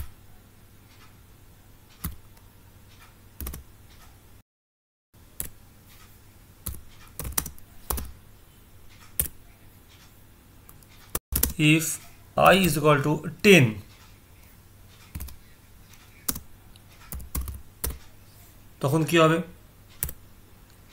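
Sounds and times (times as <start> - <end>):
computer keyboard keystrokes: 1.9 - 2.4, 3.0 - 3.6, 6.6 - 8.2, 8.9 - 9.4, 10.7 - 11.6, 15.0 - 18.1, 19.9 - 20.2.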